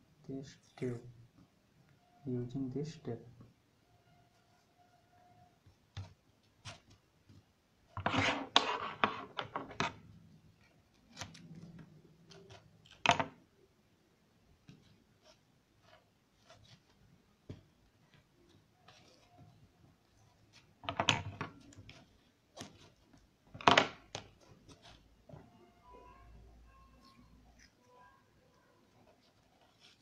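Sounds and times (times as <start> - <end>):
rustling on cardboard: 5.7 - 9.7, 14.6 - 25.5, 28.8 - 30.0.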